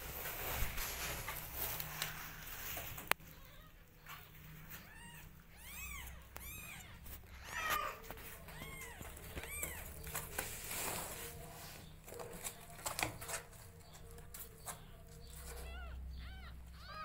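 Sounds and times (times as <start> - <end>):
rustling on blanket: 0.0 - 3.2, 6.6 - 12.2
kittens mewing: 3.2 - 10.3, 14.8 - 17.0.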